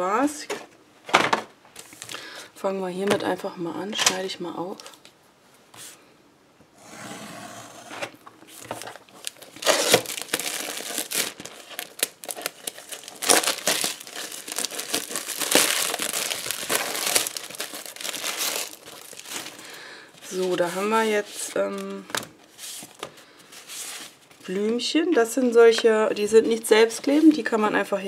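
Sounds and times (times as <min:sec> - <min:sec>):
plastic wrapping crinkling and tearing: 0:08.6 - 0:23.1.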